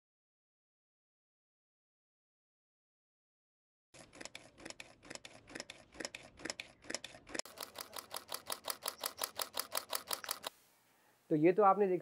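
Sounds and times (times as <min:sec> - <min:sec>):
camera shutter clicking in bursts: 0:04.0 - 0:10.6.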